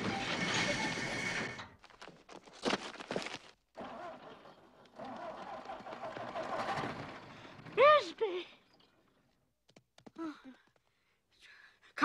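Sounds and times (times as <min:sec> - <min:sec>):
tractor engine whining: 0:03.8 - 0:08.0.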